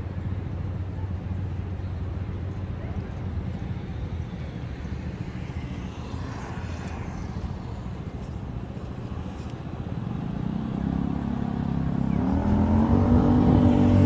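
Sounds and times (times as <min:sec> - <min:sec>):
low rumble of vehicles: 0:00.0 - 0:14.0
engine accelerating: 0:10.2 - 0:14.0.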